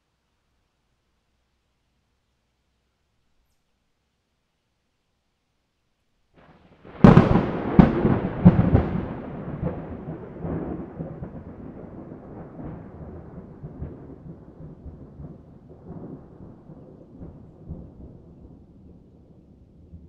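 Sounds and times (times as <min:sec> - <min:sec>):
thunder cracks: 0:06.4 - 0:20.0
thunder rumble: 0:06.4 - 0:20.0.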